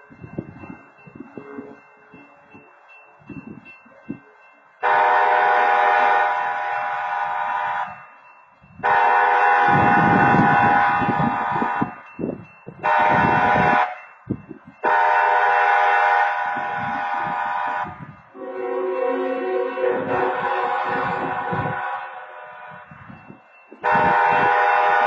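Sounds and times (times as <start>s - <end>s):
locomotive air horn blasts: 4.8s - 8.0s, 8.8s - 12.0s, 12.8s - 14.0s, 14.8s - 23.0s, 23.8s - 25.0s.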